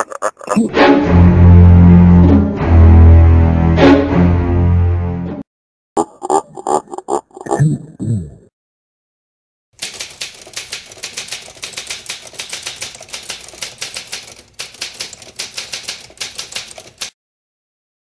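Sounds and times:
typewriter keys clicking: 9.8 - 17.2.

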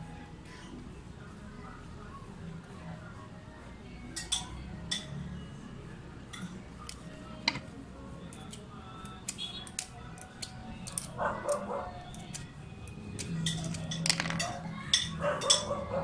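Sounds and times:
tools clicking on a workbench: 6.9 - 7.7, 9.7 - 12.4, 13.2 - 15.8.

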